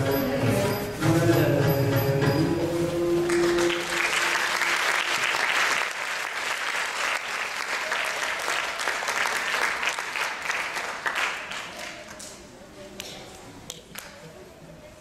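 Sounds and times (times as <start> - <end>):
audience applauding: 3.3 - 12.3.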